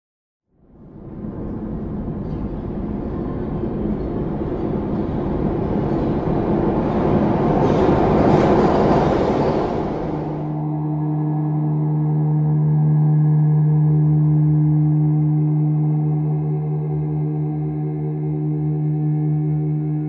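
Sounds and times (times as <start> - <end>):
low drone: 0.6 - 20.0
dense rushing rumble: 0.7 - 10.6.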